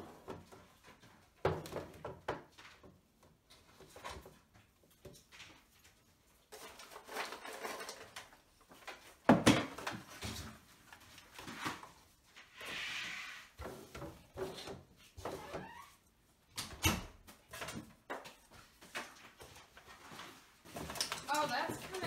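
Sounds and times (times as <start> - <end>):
plastic trays and pods rattling: 6.4 - 10.5, 20.7 - 22.0.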